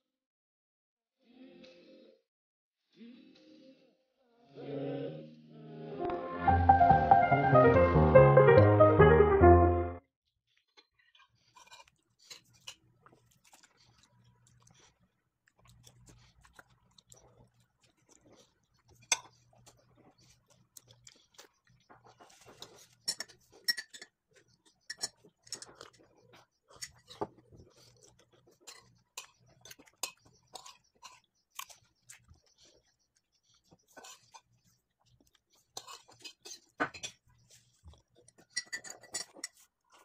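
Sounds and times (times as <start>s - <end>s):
person chewing: 10.5s - 40.0s
spoon scraping ceramic bowl: 38.4s - 39.7s.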